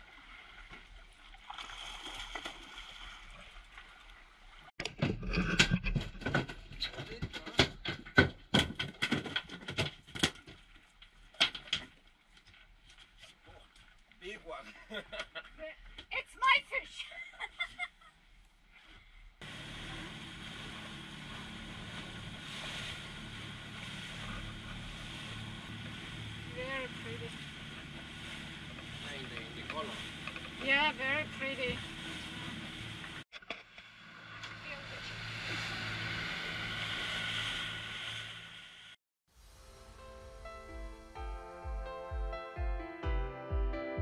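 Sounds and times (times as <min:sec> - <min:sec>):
wind: 0:00.0 - 0:42.4
sea water rushing: 0:19.4 - 0:33.2, 0:34.0 - 0:41.1
outboard motor humming: 0:19.4 - 0:39.6
boat noise: 0:19.4 - 0:42.3.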